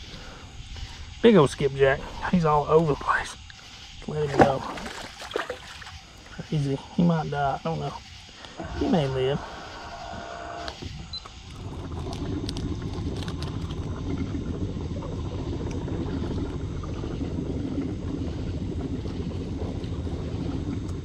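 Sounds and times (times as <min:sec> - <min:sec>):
boat motor running: 0:09.7 - 0:21.0.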